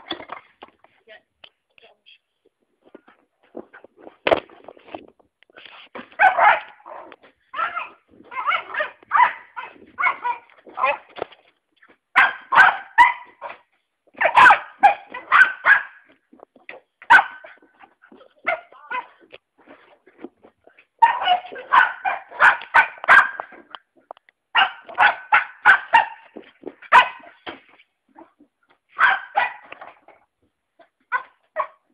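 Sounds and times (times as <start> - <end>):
puppy barking and yipping: 6.2 - 11.1, 12.2 - 13.6, 14.2 - 16.1, 17.1 - 17.6, 21.0 - 23.6, 24.6 - 27.4, 29.0 - 29.7, 31.1 - 31.9.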